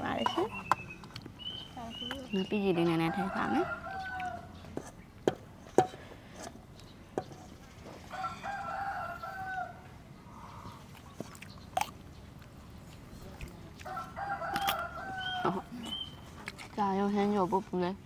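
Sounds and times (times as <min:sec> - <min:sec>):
rooster crowing: 0:03.0 - 0:04.6, 0:08.1 - 0:09.9, 0:13.8 - 0:15.9.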